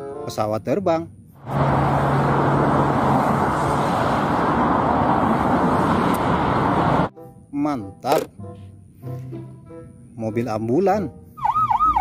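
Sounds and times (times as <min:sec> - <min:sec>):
jet engines roaring: 0:01.4 - 0:07.1.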